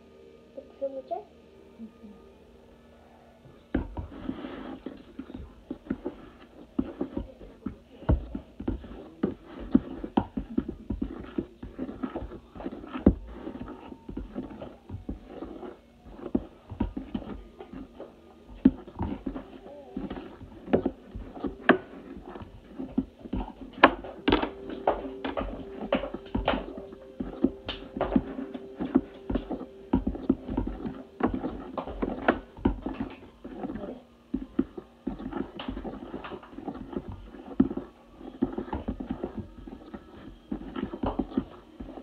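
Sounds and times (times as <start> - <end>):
metal utensil stirring batter in bowl: 3.7 - 42.0.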